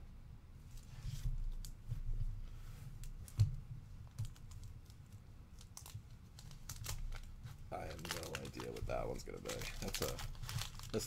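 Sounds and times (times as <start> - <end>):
clicks and taps of plastic sleeves: 3.0 - 11.0.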